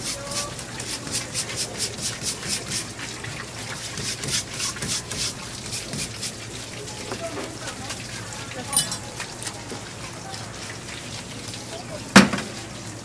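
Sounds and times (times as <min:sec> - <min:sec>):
brush scrubbing on cutting board: 0:00.0 - 0:03.0, 0:03.6 - 0:06.5.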